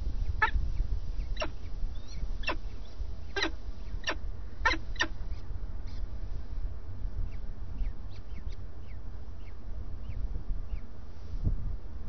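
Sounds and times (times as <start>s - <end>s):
steady low rumble: 0.0s - 12.0s
falcon chicks begging calls: 0.2s - 0.6s, 1.2s - 6.0s, 7.3s - 10.8s.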